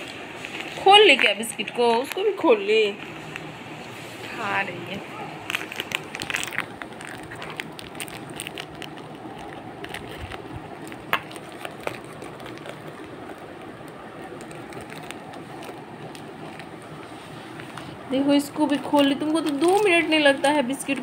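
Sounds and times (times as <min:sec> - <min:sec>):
plastic wrapper crinkling: 0:00.0 - 0:03.5, 0:04.3 - 0:21.0
wrapper snap: 0:05.2 - 0:16.8.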